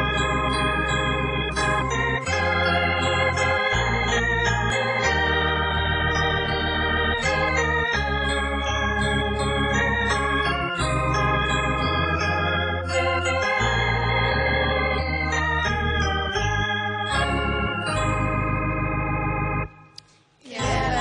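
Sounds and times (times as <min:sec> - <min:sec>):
electronic organ chords: 0:00.0 - 0:20.0, 0:20.6 - 0:21.0.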